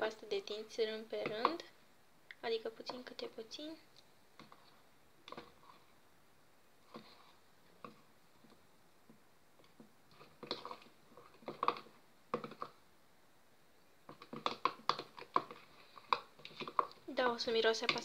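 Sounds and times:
spoon stirring slime in bowl: 0:00.1 - 0:01.8, 0:02.6 - 0:03.5, 0:04.3 - 0:06.0, 0:06.8 - 0:12.8, 0:14.0 - 0:18.0.

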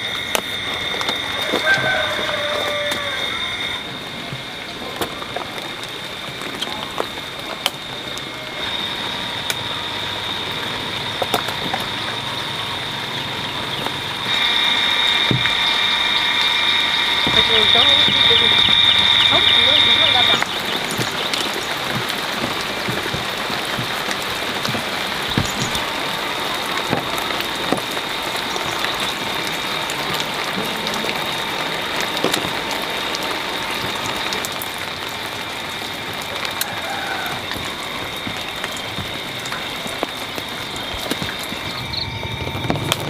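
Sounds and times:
insects chorus buzzing: 0:00.0 - 0:43.0.

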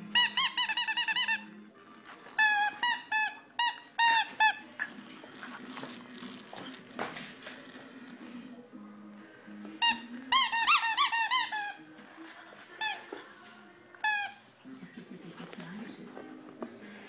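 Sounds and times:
squeaky dog toy squeaking: 0:00.1 - 0:01.5, 0:02.4 - 0:04.6, 0:09.8 - 0:11.8, 0:14.0 - 0:14.4.

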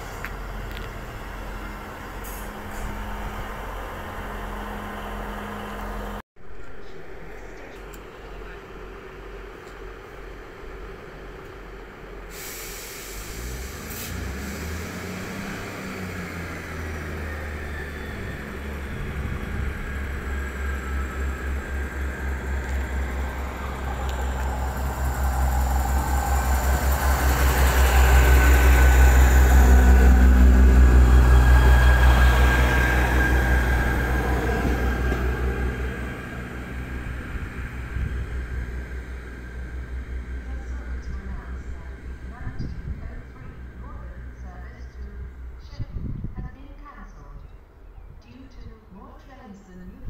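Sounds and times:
diesel train engines throbbing: 0:00.0 - 0:47.8
train whining note: 0:12.3 - 0:45.6.

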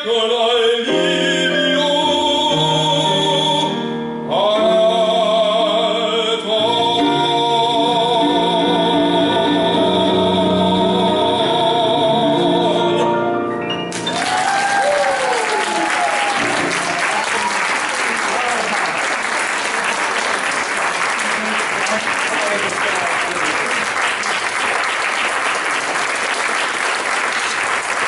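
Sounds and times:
man singing with vibrato: 0:00.0 - 0:13.6
audience applause: 0:13.9 - 0:28.0.

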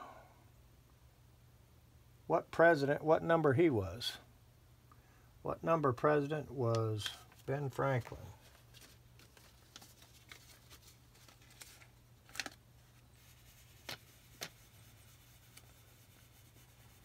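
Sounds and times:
low steady hum: 0:00.0 - 0:17.0
paper banknote rubbing on metal rod: 0:13.2 - 0:17.0.

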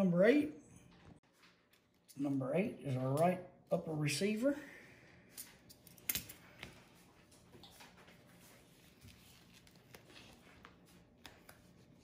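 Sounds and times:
hands handling decal sheet: 0:05.7 - 0:12.0.

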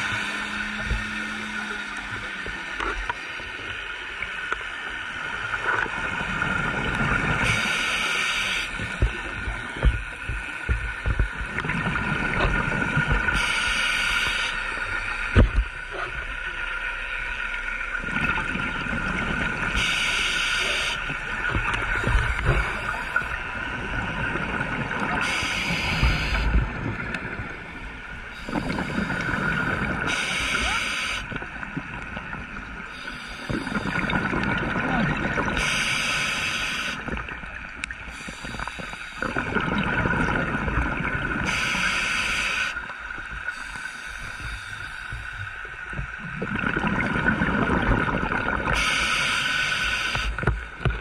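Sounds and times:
scuba regulator inhalation hiss: 0:07.4 - 0:08.9, 0:13.3 - 0:14.8, 0:19.8 - 0:21.0, 0:25.2 - 0:26.6, 0:28.4 - 0:31.3, 0:32.9 - 0:34.0, 0:35.6 - 0:37.1, 0:38.1 - 0:39.3, 0:41.4 - 0:42.8, 0:43.5 - 0:45.3, 0:48.7 - 0:50.4.

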